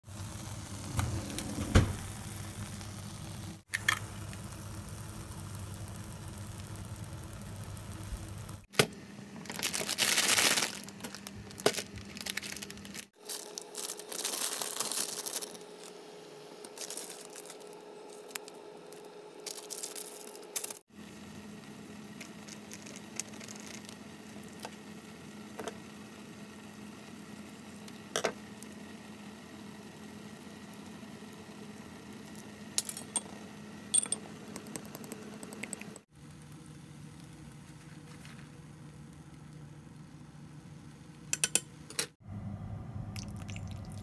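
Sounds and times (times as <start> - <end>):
plastic packaging crinkling and tearing: 9.4 - 16.0, 16.6 - 20.8, 22.2 - 24.7.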